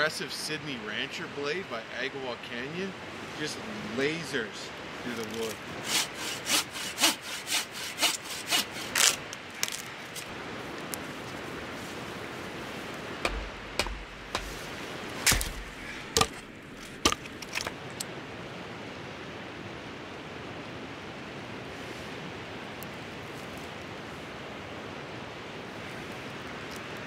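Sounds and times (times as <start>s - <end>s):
fast river hissing: 0.0s - 17.0s
wood cracking: 5.2s - 10.3s, 13.2s - 18.0s
hand saw cutting wood: 5.3s - 9.9s
wood being split: 5.3s - 9.9s, 13.2s - 14.6s, 15.2s - 17.8s
thuds: 13.2s - 14.6s.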